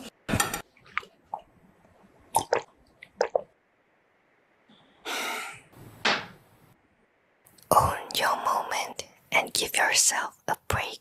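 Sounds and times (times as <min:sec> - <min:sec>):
wet squelches and gulps: 0:00.7 - 0:01.6, 0:02.3 - 0:03.5.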